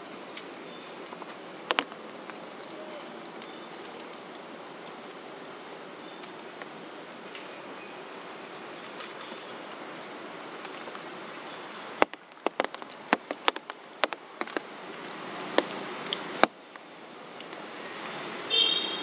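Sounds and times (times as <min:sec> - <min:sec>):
rain hissing: 0:00.0 - 0:18.5
sharp taps of drops: 0:01.7 - 0:02.0, 0:12.0 - 0:14.7.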